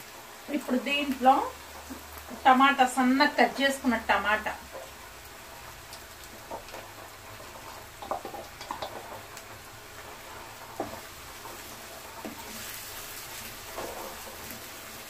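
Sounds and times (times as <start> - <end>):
food sizzling in a pan: 0.0 - 15.0
spoon scraping a pan: 6.5 - 9.3, 10.0 - 15.0.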